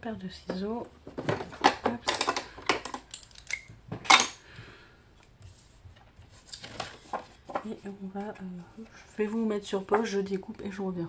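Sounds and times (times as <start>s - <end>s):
paper and scissors handled: 5.4s - 10.2s.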